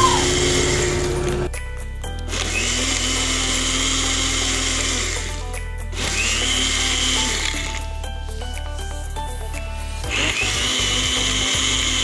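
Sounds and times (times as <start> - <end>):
blender running: 0.0 - 1.5, 2.3 - 7.9, 10.1 - 12.0
background music: 0.0 - 12.0.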